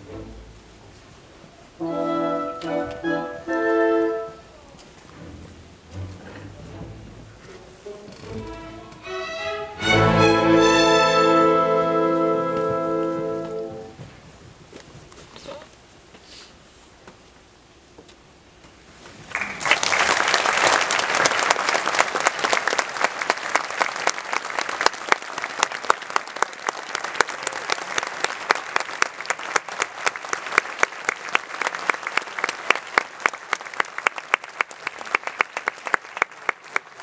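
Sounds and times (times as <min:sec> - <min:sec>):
audience applauding: 0:19.3 - 0:37.0.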